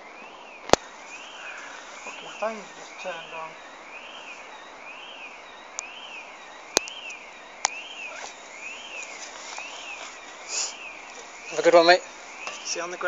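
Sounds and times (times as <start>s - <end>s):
electronic siren tone wailing: 0.0s - 13.0s
sharp clicks: 6.7s - 8.4s.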